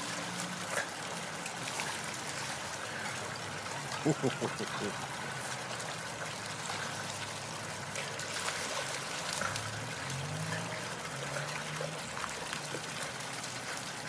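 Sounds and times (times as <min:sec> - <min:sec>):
dogs splashing: 0:00.0 - 0:14.0.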